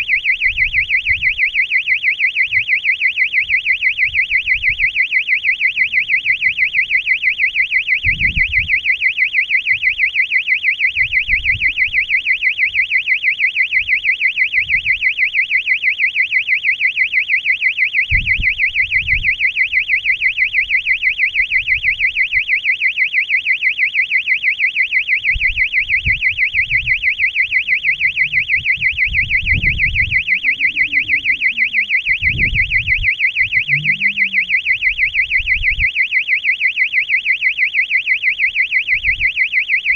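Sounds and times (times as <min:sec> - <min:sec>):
fast high-pitched electronic beeps: 0:00.0 - 0:10.2, 0:24.7 - 0:39.9.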